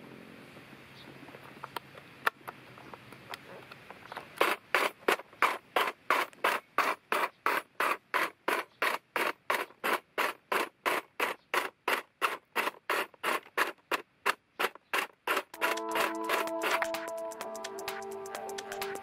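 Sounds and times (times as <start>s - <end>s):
hedge trimmer cutting stems: 4.2s - 19.0s.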